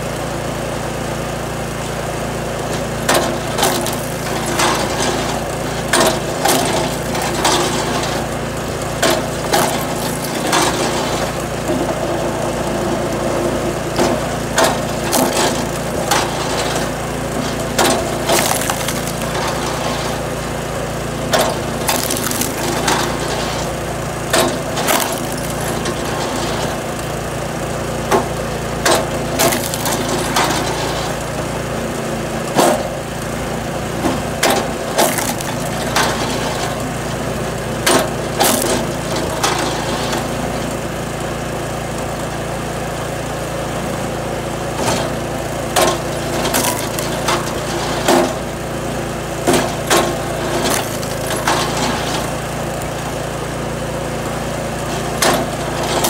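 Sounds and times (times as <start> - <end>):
small engine running: 0.0 - 56.0
wood knocking and cracking: 3.1 - 7.8, 9.0 - 11.9, 17.4 - 19.8, 21.3 - 23.4, 24.3 - 26.7, 28.2 - 30.6, 34.1 - 36.4, 37.8 - 39.6, 45.8 - 48.4, 49.5 - 52.4.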